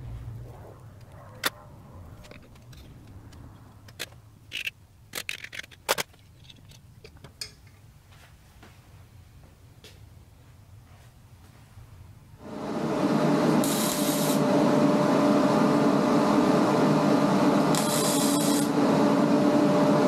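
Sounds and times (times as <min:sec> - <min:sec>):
low steady hum: 0:00.0 - 0:05.1.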